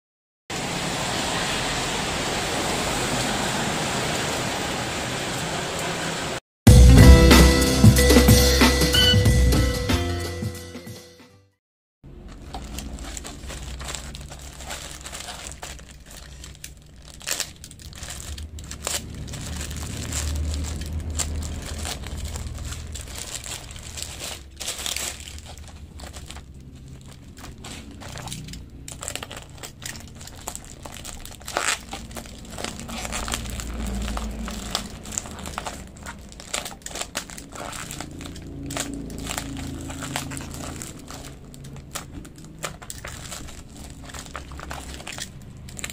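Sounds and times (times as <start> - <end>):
plastic packaging crinkling: 12.1 - 45.9.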